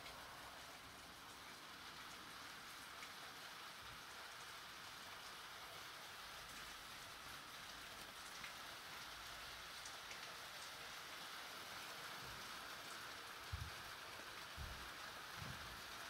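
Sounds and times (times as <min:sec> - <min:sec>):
soft raindrop ticks: 0:00.0 - 0:05.5, 0:07.5 - 0:10.8
light rain hissing: 0:00.0 - 0:16.0.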